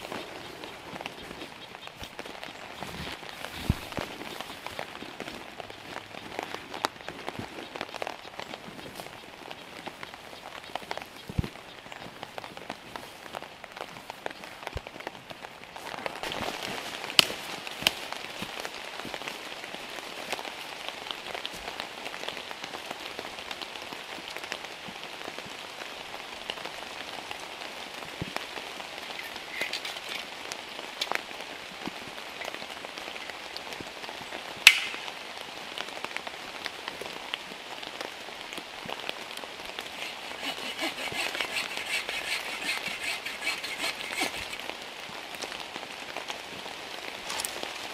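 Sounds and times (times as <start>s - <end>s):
heavy rain on a tarp: 0.0s - 47.9s
sharp taps on tarp: 34.6s - 35.1s.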